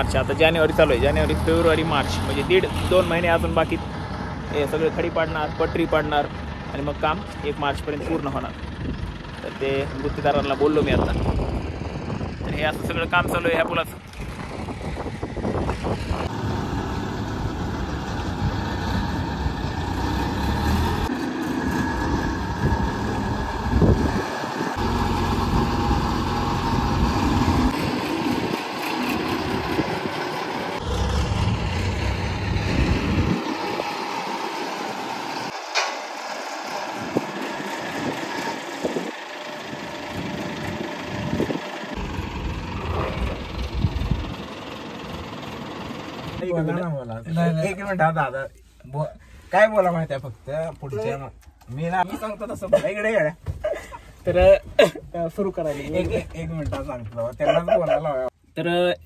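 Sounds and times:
heavy engine running: 0.0 - 46.8
wind buffeting microphone: 9.9 - 16.5, 22.0 - 24.8, 26.7 - 34.1, 36.9 - 44.6.

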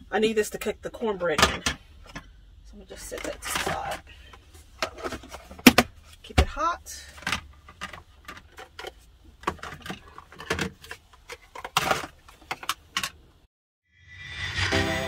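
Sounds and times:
plastic containers clicking and clattering: 3.0 - 13.2.

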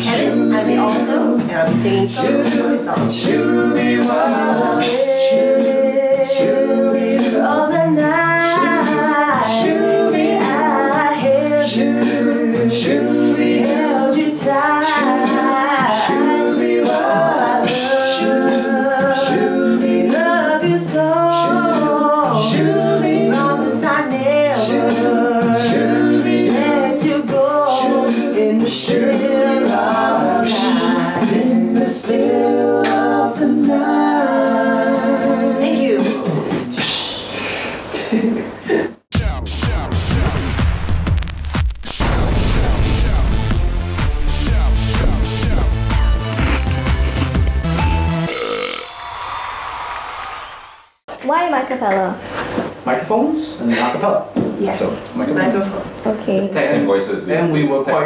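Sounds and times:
woman singing lead: 0.0 - 32.2
beatboxing: 0.0 - 34.8, 35.7 - 38.0, 39.1 - 40.3, 43.0 - 48.9
backing voices singing harmony: 0.0 - 37.3, 42.0 - 50.8.

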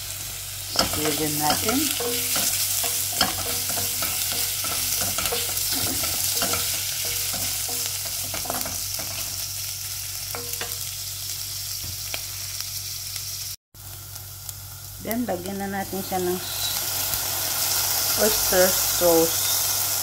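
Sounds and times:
food sizzling in hot oil: 0.0 - 20.0
wooden spatula scraping a pot: 0.8 - 9.3.

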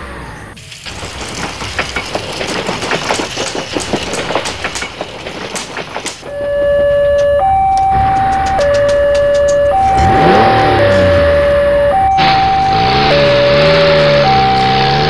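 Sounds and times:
train wheels clickety-clack: 0.6 - 10.0
level-crossing two-tone alarm: 6.3 - 15.0.

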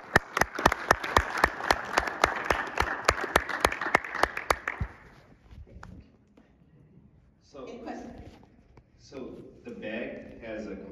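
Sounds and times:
close hand clapping: 0.0 - 5.1
audience applauding: 0.0 - 5.2.

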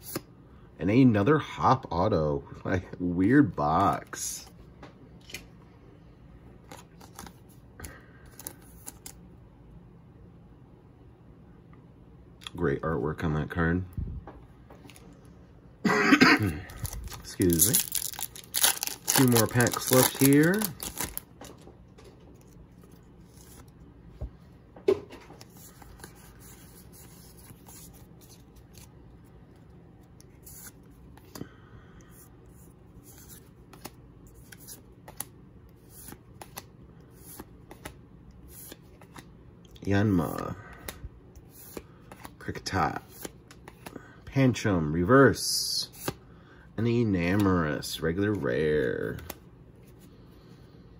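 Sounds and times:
cards rustling and flicking: 6.6 - 9.2, 16.7 - 23.8, 25.2 - 31.5, 32.1 - 39.3, 40.0 - 44.0, 45.9 - 46.2, 48.3 - 50.1
card sliding into plastic sleeve: 16.8 - 21.3.

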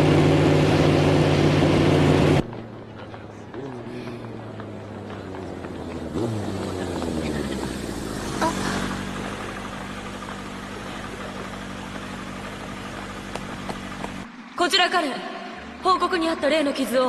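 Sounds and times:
motorcycle engine idling: 2.4 - 14.5.

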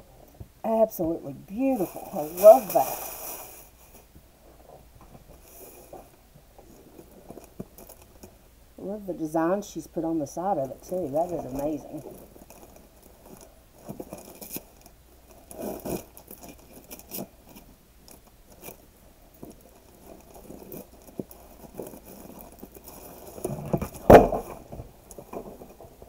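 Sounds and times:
ribbon and wrapping paper rustling: 1.5 - 4.1, 9.5 - 18.8
box thump: 23.8 - 24.6.

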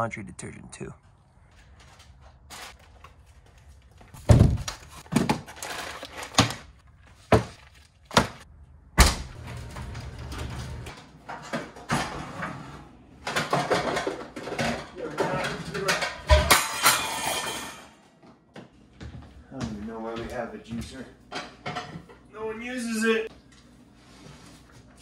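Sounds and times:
clatter of household items: 1.8 - 8.4, 9.4 - 18.1, 20.3 - 22.3
items knocking on wooden shelves: 4.1 - 8.4, 13.2 - 16.8.

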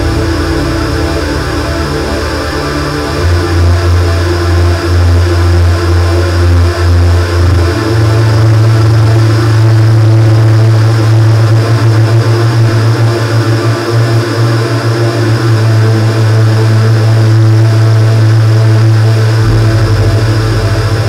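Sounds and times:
synthesizer bass drone: 0.0 - 21.0
higher synthesizer tones: 19.2 - 21.0.

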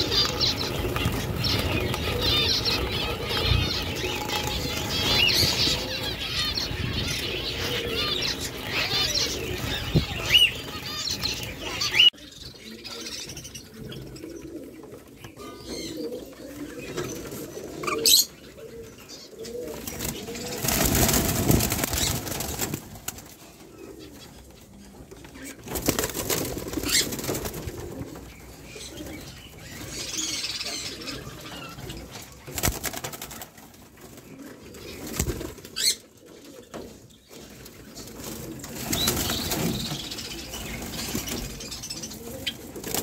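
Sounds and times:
wings flapping: 0.0 - 6.0, 19.8 - 23.4, 25.6 - 28.1, 32.5 - 33.9, 35.0 - 35.8, 38.1 - 41.7, 42.4 - 43.0.

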